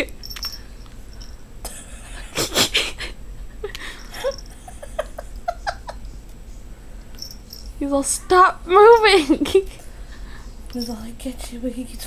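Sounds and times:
breathy wheezing laugh: 1.7 - 6.0.

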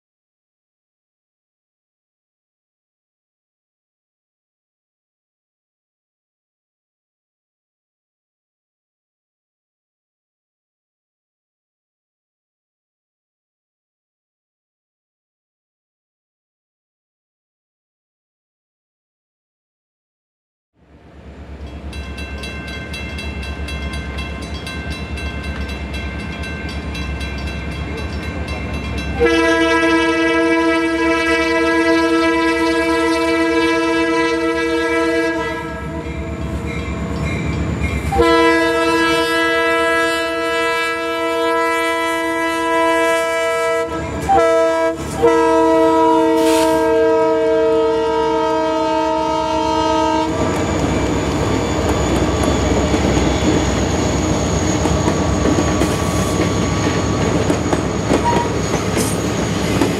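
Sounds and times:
locomotive and wheels rumbling: 20.8 - 29.8, 35.6 - 38.4, 49.9 - 59.9
locomotive horn blasts: 29.1 - 36.4, 38.1 - 50.6.

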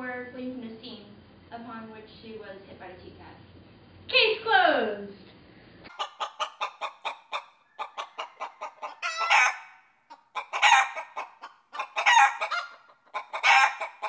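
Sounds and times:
chicken clucking: 5.9 - 14.0.

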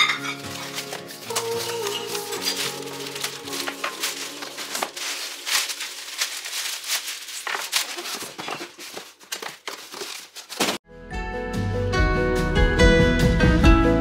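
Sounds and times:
plastic wrap crinkling: 0.0 - 10.8.

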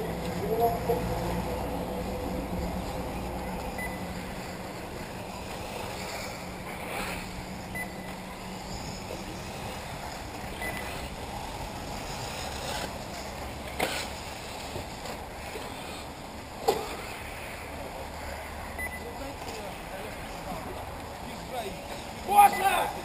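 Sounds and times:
rc car motors and tyres: 0.0 - 23.0
short high beeps: 3.8 - 4.1, 7.7 - 8.2, 10.6 - 10.9, 18.8 - 19.1, 22.4 - 22.9.

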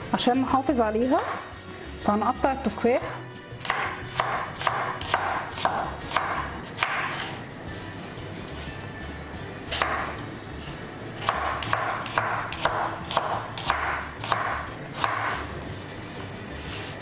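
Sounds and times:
knife chopping on wooden board: 3.6 - 7.4, 9.7 - 10.2, 11.2 - 15.5.

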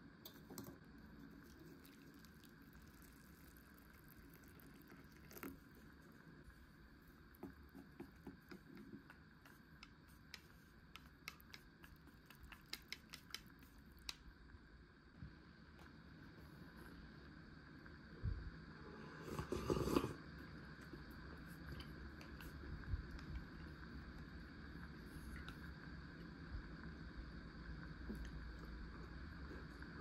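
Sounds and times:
faint room hiss: 0.0 - 30.0
utensils clicking and tapping: 7.8 - 14.2.

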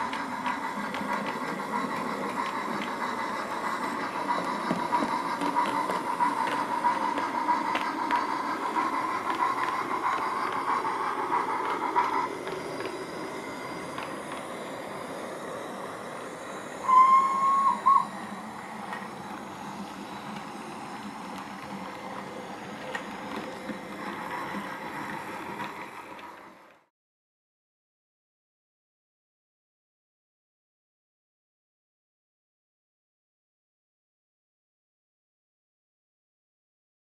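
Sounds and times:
recorded steam locomotive hiss: 0.0 - 26.9
steam whistle: 16.7 - 18.4.

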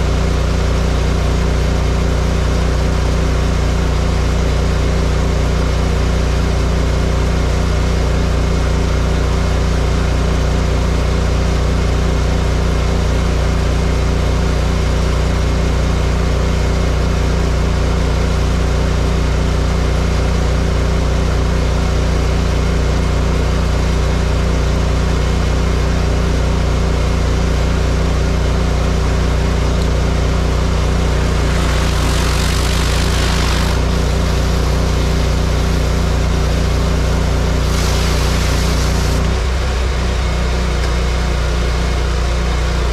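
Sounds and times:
pressure washer engine running: 0.0 - 7.2, 27.2 - 39.6
surface cleaner water hiss: 31.0 - 39.2.

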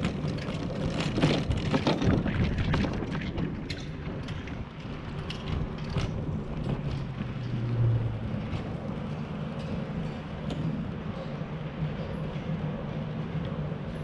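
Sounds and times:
bicycle tyres rolling on pavement: 0.0 - 14.0.

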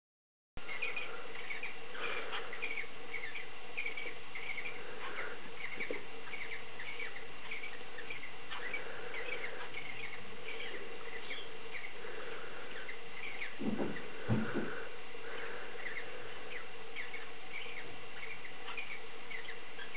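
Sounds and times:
low hum: 0.6 - 19.9
cockatiels squeaky chirps: 0.7 - 12.0, 12.7 - 14.1, 15.4 - 19.9.

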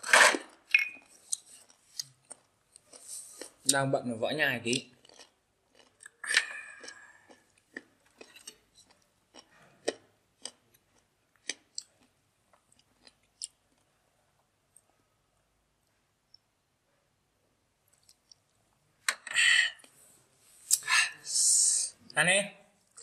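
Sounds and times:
person chewing crunchy food: 0.0 - 3.7, 4.7 - 13.9, 17.9 - 18.5.

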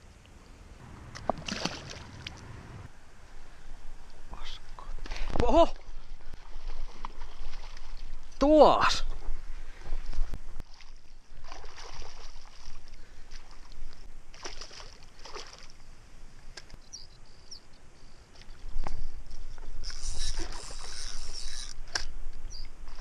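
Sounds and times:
fish splashing in water: 1.1 - 2.4, 6.4 - 8.2, 10.7 - 13.7, 14.3 - 15.8.

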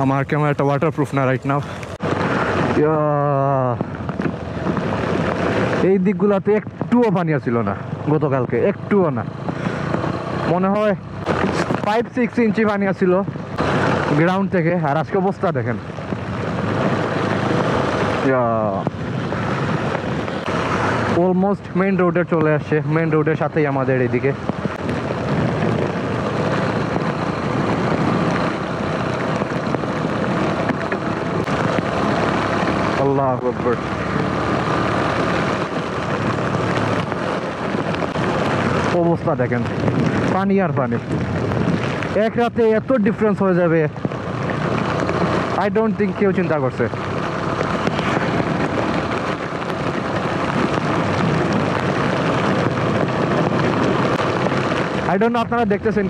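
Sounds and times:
motorcycle engine running: 0.0 - 56.0
rain: 0.0 - 56.0
wet road noise: 0.0 - 56.0
wind on microphone: 24.3 - 33.0, 33.7 - 42.2, 46.9 - 56.0.

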